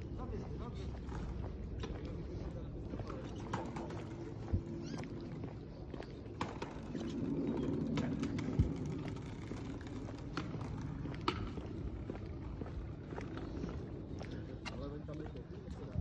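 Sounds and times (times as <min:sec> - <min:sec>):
skateboard wheels rolling on bricks: 0:03.1 - 0:04.5, 0:06.1 - 0:13.6
skateboard clacks: 0:06.4 - 0:11.9.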